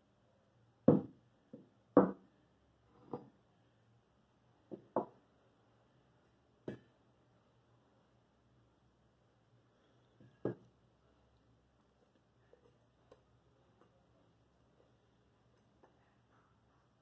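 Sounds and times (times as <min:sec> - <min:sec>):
tools knocking on workbench: 0:00.9 - 0:02.2.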